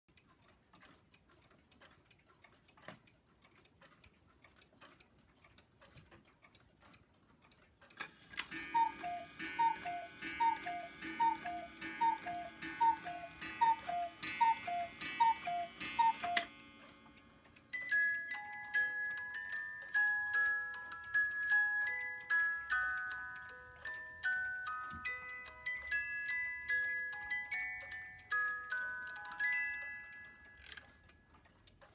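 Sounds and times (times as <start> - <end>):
clock ticking: 0.1 - 31.9
two-note cuckoo call: 8.4 - 16.6.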